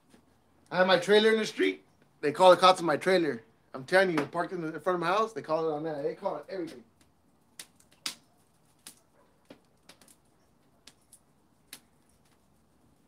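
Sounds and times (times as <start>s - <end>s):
wood fire crackling and popping: 3.8s - 13.0s.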